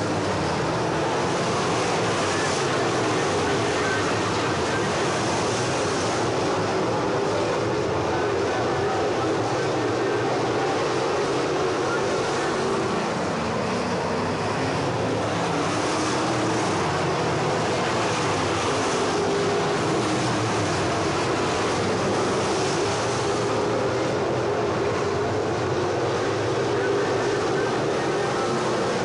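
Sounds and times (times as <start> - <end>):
race car engines droning: 0.0 - 29.0.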